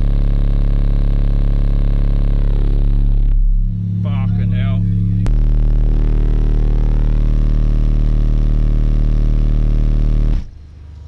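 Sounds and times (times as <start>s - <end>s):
deep bass test tone: 0.0s - 10.6s.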